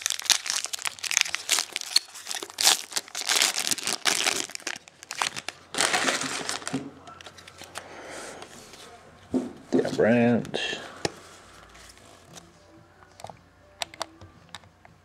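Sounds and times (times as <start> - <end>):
foil wrapper crinkling: 0.0 - 7.8.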